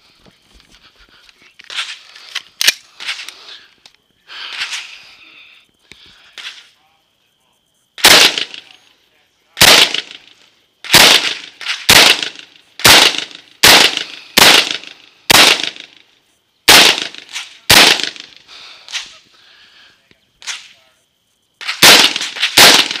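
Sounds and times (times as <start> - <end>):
rifle shots: 8.0 - 8.8, 9.6 - 16.0, 16.7 - 19.1, 21.6 - 23.0.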